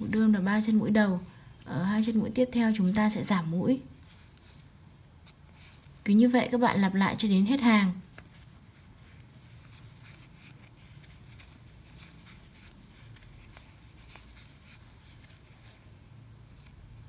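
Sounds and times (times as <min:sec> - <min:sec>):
crochet hook scratching yarn: 0:08.1 - 0:16.0.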